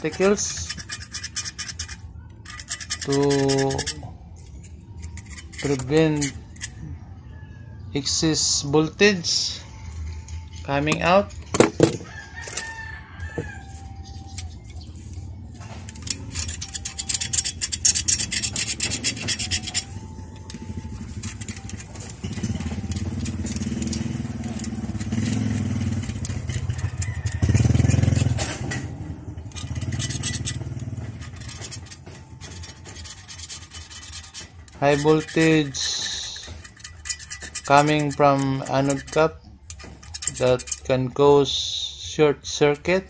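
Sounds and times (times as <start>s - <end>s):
blade scraping glass: 0.0s - 7.0s, 12.0s - 42.9s
rooster crowing: 12.0s - 14.0s, 26.5s - 28.4s.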